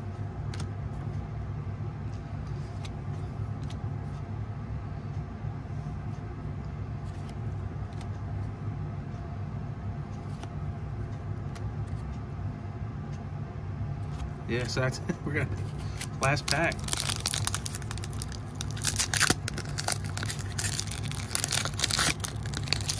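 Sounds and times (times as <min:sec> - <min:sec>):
steady low hum: 0:00.0 - 0:22.9
trading cards clicking and sliding: 0:00.5 - 0:01.1, 0:02.4 - 0:04.2, 0:10.1 - 0:10.6, 0:15.6 - 0:16.8.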